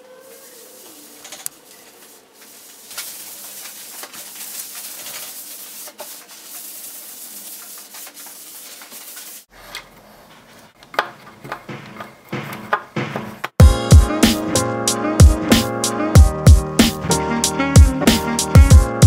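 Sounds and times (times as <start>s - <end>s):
cloth rag wiping wood: 0.0s - 9.5s.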